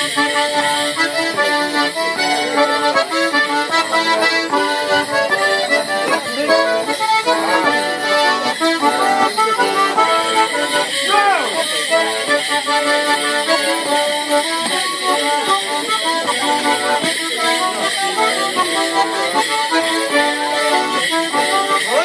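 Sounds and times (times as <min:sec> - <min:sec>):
accordion playing dance tune: 0:00.0 - 0:22.0
leg bells jingling: 0:00.0 - 0:22.0.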